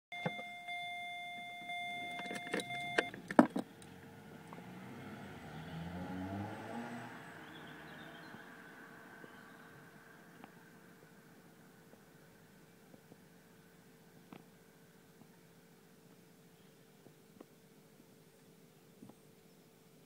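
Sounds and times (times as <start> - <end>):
electronic warning tone: 0.1 - 3.2
key and ignition switch clicks: 2.0 - 3.6.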